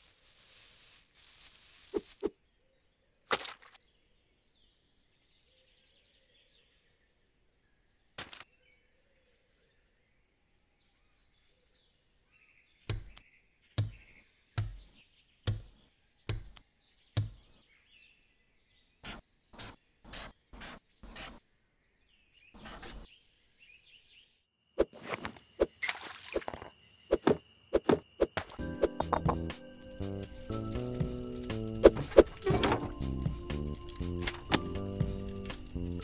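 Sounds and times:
faint birdsong chirps: 0.0 - 36.0
marker strokes: 19.0 - 21.4, 22.6 - 23.1.

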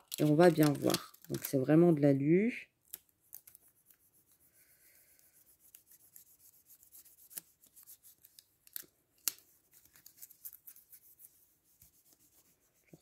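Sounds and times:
foil tape crinkling and rubbing: 0.0 - 1.7, 2.9 - 4.2, 5.4 - 11.3.

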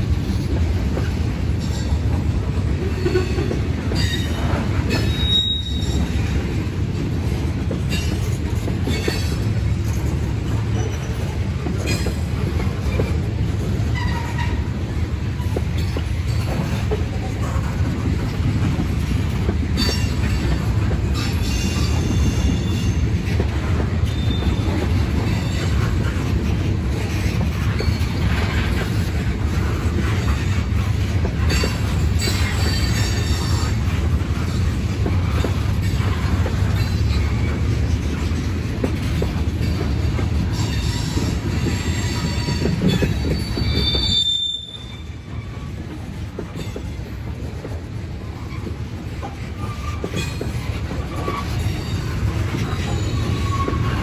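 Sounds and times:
train wheels rumbling on rails: 0.0 - 54.0
high wheel squeals: 4.0 - 6.2, 40.5 - 45.8, 49.6 - 54.0.

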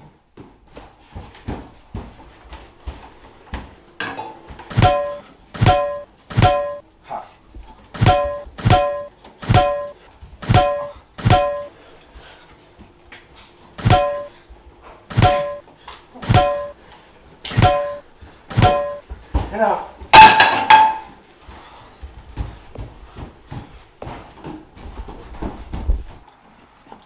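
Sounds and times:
frying pan hits ringing: 4.7 - 6.8, 8.0 - 11.7, 13.8 - 14.3, 15.1 - 15.6, 16.2 - 16.8, 17.5 - 19.0, 20.2 - 21.1.

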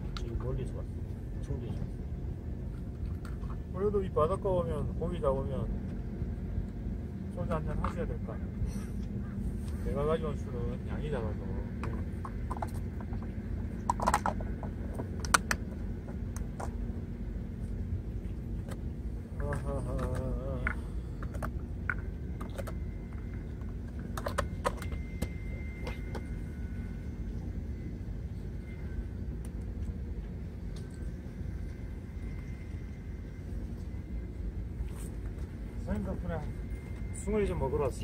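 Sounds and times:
steady low rumble: 0.0 - 38.0.

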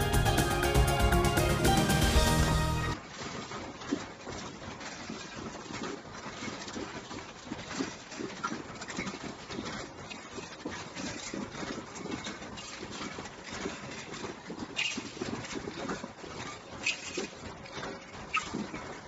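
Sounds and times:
steady machine noise: 0.0 - 3.0.

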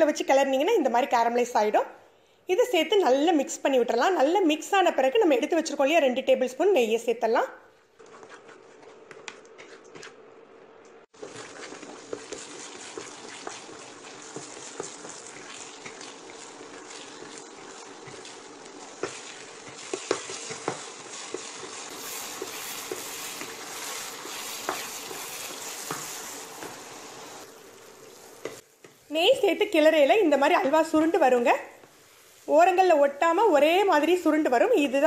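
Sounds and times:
spatula scraping pan: 8.0 - 10.2, 11.2 - 27.0
frying hiss: 11.1 - 35.0.

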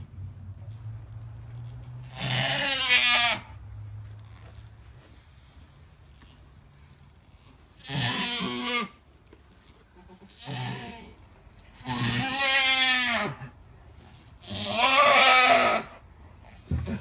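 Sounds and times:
goat bleating: 1.5 - 3.6, 7.4 - 13.6, 14.2 - 17.0.

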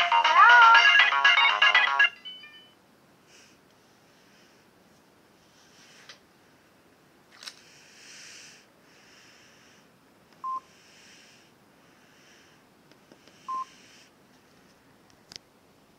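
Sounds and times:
phone keypad beeps: 10.4 - 10.6.

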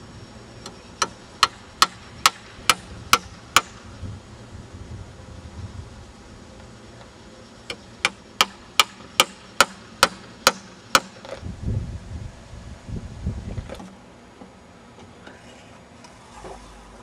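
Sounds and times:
hammer striking wood: 1.0 - 3.8, 8.0 - 11.2.

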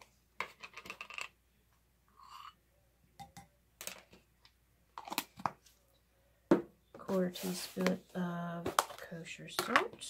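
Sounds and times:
plastic spoons clicking and knocking: 0.0 - 1.4, 5.0 - 5.6, 8.7 - 10.0.

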